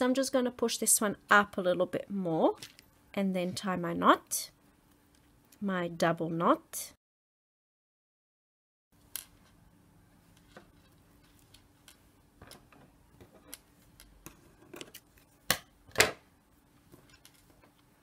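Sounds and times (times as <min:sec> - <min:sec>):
beads and thread rustling: 0:10.3 - 0:15.4.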